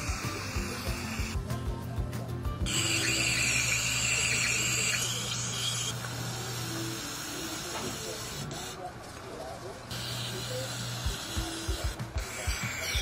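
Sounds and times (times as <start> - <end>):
aerosol can spraying: 0.0 - 1.4, 2.7 - 8.8, 9.9 - 13.0
upbeat background music: 0.0 - 5.5.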